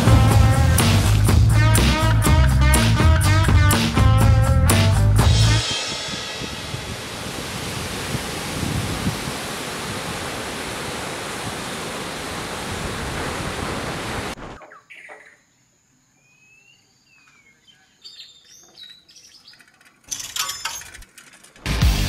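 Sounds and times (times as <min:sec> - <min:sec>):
ocean surf breaking on shore: 0:06.0 - 0:14.5.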